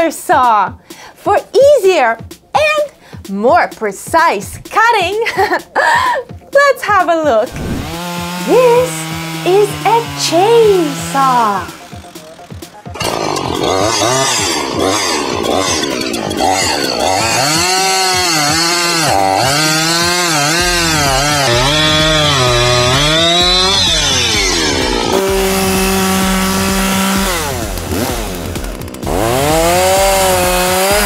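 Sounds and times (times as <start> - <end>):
chainsaw cutting logs: 7.4 - 31.0.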